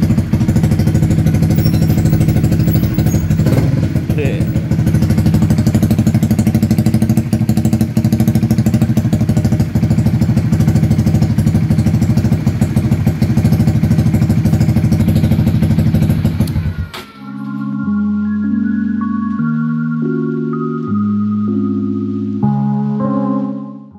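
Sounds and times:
motorcycle engine idling: 0.0 - 17.0.

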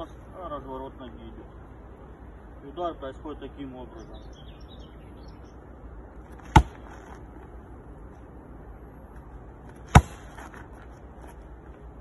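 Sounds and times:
kick slapping a padded shield: 9.9 - 10.4.

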